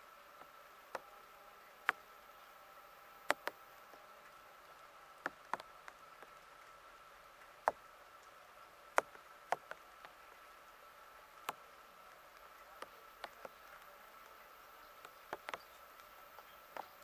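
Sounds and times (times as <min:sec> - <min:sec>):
sharp ticks: 0:03.2 - 0:04.0, 0:09.0 - 0:10.2, 0:11.4 - 0:17.0.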